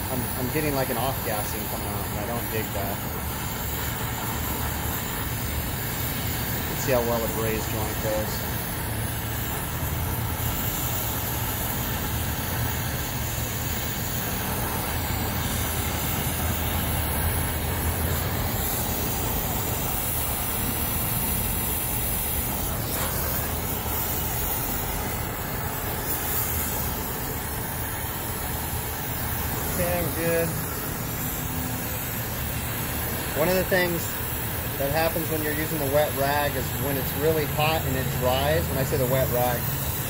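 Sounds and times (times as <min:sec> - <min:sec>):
torch flame hissing: 0:00.0 - 0:40.0.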